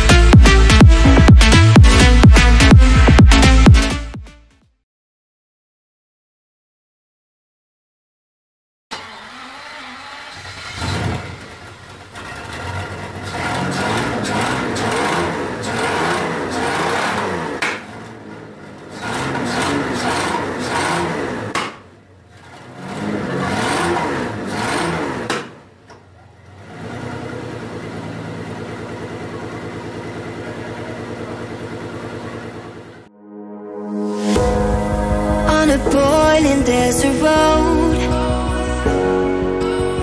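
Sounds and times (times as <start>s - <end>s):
car engine revving and idling: 9.0s - 33.1s.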